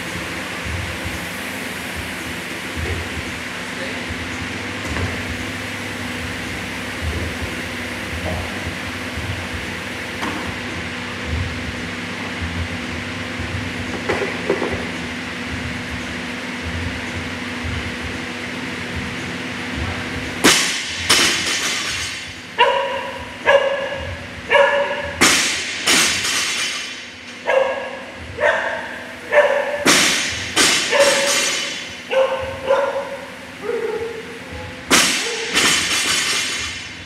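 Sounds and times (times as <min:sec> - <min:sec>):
dog barking: 0:22.6 - 0:25.2, 0:27.4 - 0:29.8, 0:32.1 - 0:34.3.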